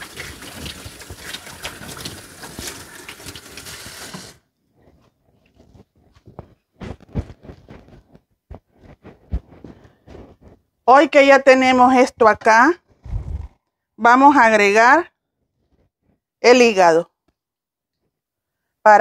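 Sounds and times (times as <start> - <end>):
faucet running into sink: 0.0 - 4.4.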